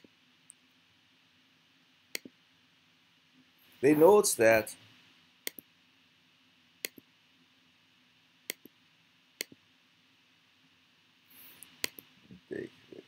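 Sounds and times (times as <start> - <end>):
computer mouse clicks: 2.1 - 2.3, 5.4 - 5.7, 6.8 - 7.1, 8.5 - 8.7, 11.5 - 12.1.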